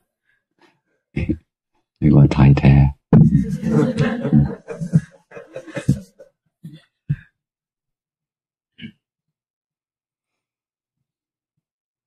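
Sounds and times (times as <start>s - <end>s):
man speaking: 1.2s - 1.4s, 2.0s - 6.0s.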